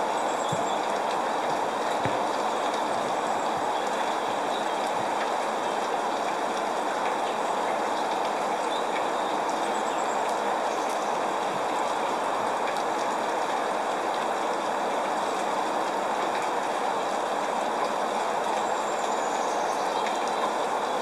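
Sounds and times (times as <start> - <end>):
rain falling: 0.0 - 21.0
faint drip ticks: 0.4 - 11.0, 17.4 - 20.6.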